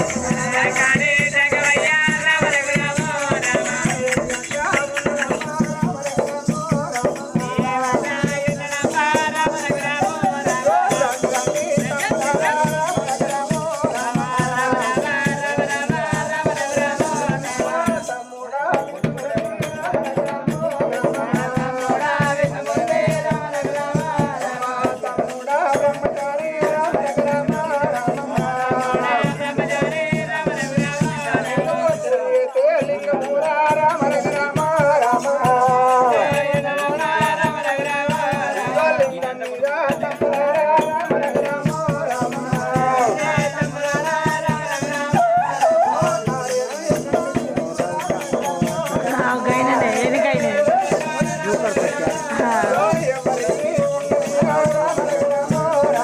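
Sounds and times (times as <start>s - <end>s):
barrel drum: 0.0s - 56.0s
voices singing folk refrain: 0.0s - 56.0s
jingling rattle: 42.1s - 56.0s.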